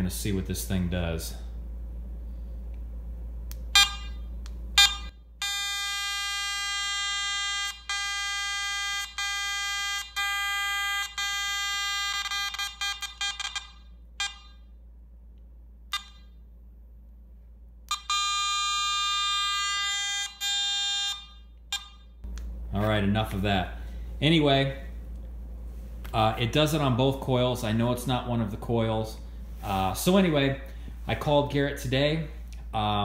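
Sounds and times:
metal detector buzzing tone: 0:03.7 - 0:14.8, 0:15.9 - 0:16.4, 0:17.9 - 0:22.2.

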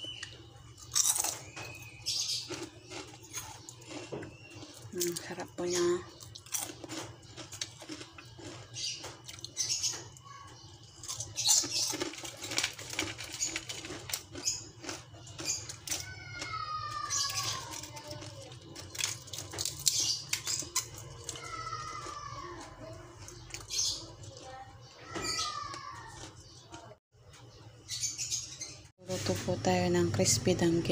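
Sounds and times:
crispy fish crunching: 0:00.0 - 0:09.8, 0:10.9 - 0:24.5, 0:25.4 - 0:27.0
drawn-out falling cries: 0:15.8 - 0:18.6, 0:21.0 - 0:23.0.

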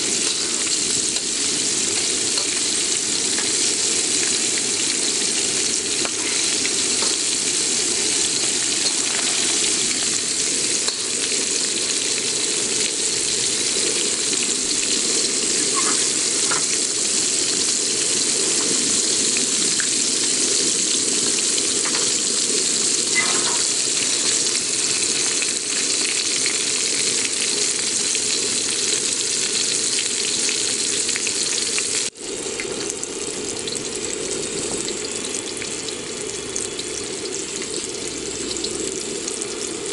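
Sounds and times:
fish deep-frying in hot oil: 0:00.0 - 0:39.9.

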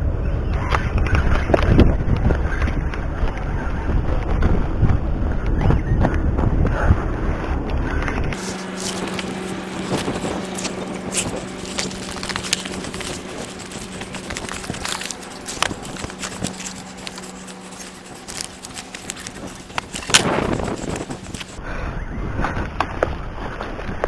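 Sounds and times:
steady low hum: 0:00.0 - 0:22.8
fabric rubbing on microphone: 0:08.3 - 0:21.6.

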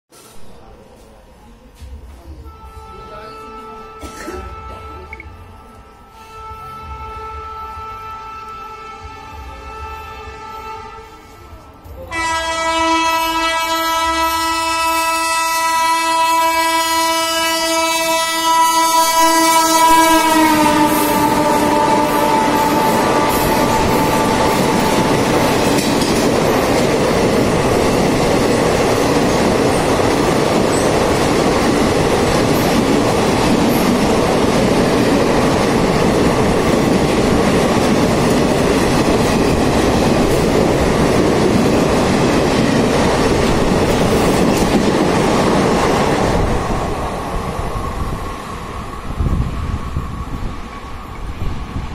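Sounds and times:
train coaches rushing and clattering: 0:00.1 - 0:51.9
train horn: 0:02.4 - 0:26.2.

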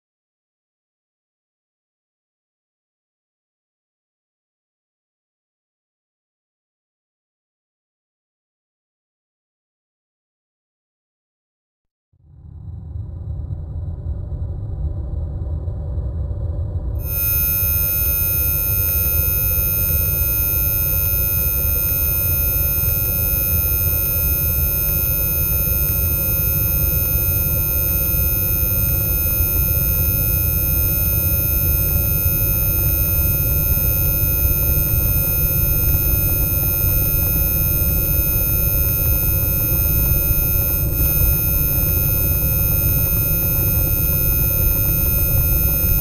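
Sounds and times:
dense low rumble: 0:12.3 - 0:17.0
high-pitched sine-like tones: 0:16.9 - 0:46.0.

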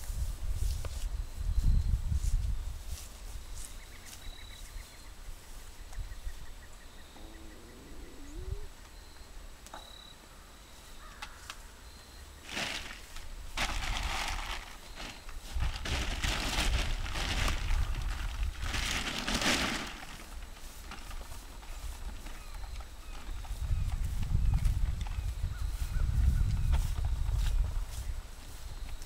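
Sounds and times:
wind rumble on microphone: 0:00.0 - 0:03.7, 0:04.6 - 0:08.8, 0:15.4 - 0:19.1, 0:20.4 - 0:29.0
faint bird chirps: 0:03.5 - 0:12.4
sack rustling and crinkling: 0:12.4 - 0:25.4.

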